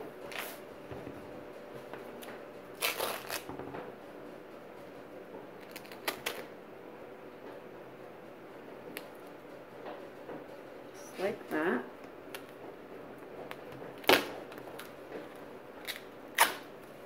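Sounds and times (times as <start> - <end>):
duct tape ripping off roll: 2.8 - 3.5, 15.8 - 16.6.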